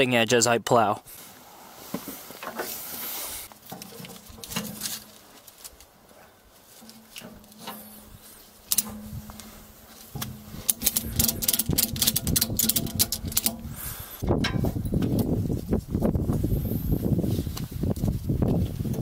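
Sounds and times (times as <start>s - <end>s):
handling rustling: 1.8s - 13.8s
ratchet strap clicking: 8.6s - 9.5s, 10.2s - 13.9s.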